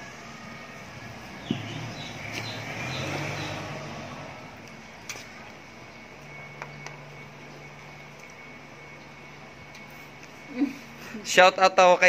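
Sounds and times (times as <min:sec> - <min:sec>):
low hum: 0:00.0 - 0:11.8.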